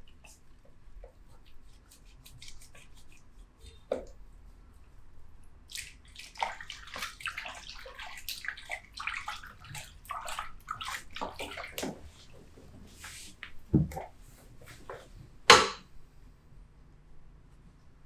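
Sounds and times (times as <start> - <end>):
water splashing and running: 5.7 - 14.2.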